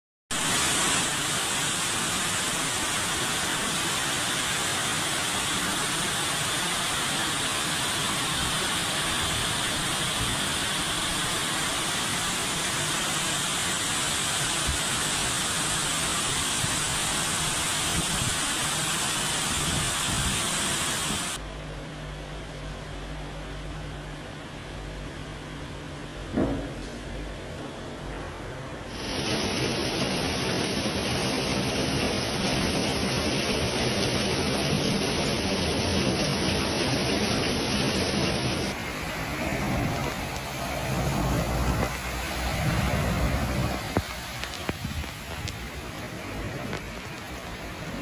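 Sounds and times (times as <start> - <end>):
torrential rain: 0.3 - 48.0.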